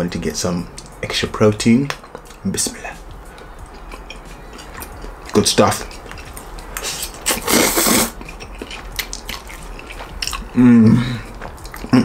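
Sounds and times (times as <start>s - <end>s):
wet chewing clicks: 3.3s - 10.6s, 11.2s - 12.0s
person slurping noodles: 6.8s - 8.2s
person humming: 10.5s - 12.0s.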